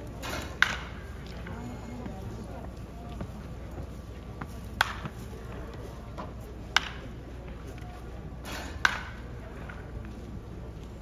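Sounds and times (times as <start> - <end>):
bat cracking against ball: 0.2 - 1.0, 4.8 - 5.2, 6.8 - 7.1, 8.4 - 9.8.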